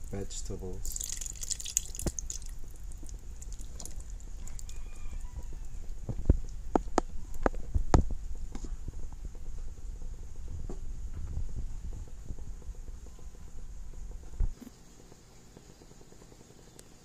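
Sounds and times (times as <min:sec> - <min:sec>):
low steady rumble: 0:00.0 - 0:17.0
dry pasta ticking into a pot: 0:00.8 - 0:04.7.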